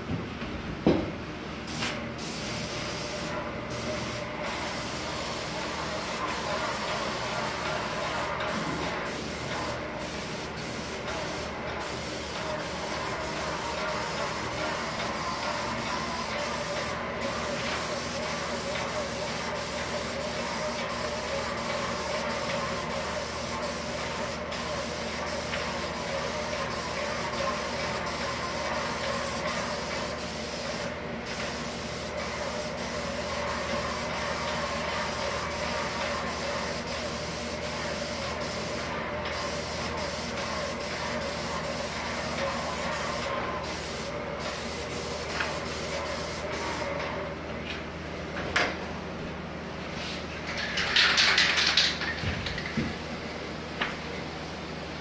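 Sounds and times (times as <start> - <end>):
paint spray gun hissing: 1.7 - 47.0.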